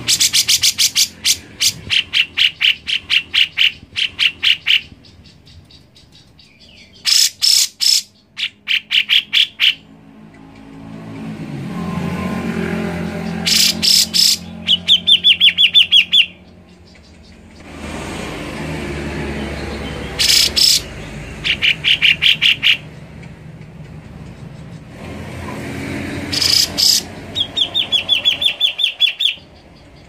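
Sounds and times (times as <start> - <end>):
bird singing rapid sharp notes: 0.0 - 10.0, 12.7 - 17.7, 19.2 - 25.0, 26.1 - 30.0
low engine hum: 9.6 - 30.0.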